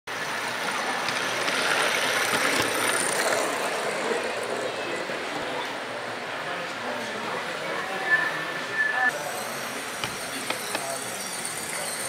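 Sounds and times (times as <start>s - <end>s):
model train rolling hiss: 9.2s - 12.0s.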